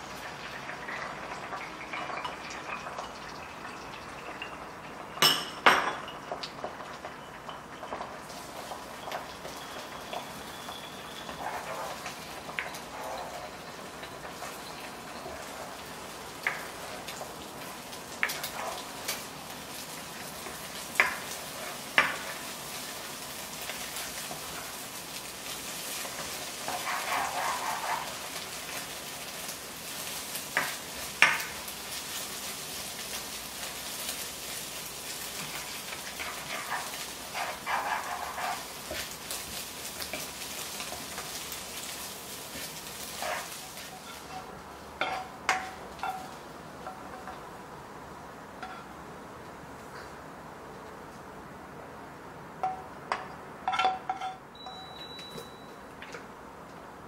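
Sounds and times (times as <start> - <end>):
egg sizzling in a wok: 0.0 - 49.0
spatula scraping pan: 10.3 - 15.6, 18.2 - 19.2, 25.7 - 28.8, 35.3 - 47.4
spatula tapping pan: 30.5 - 31.6, 35.4 - 39.1, 43.2 - 47.4, 52.6 - 54.8.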